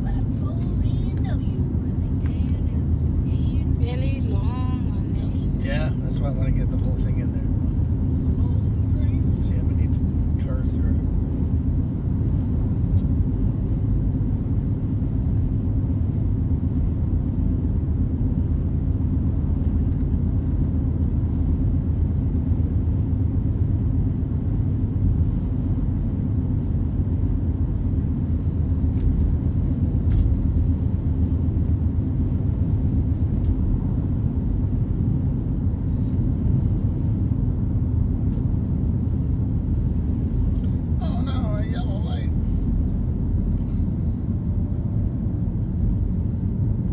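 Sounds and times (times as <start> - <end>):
car driving rumble: 0.0 - 46.9.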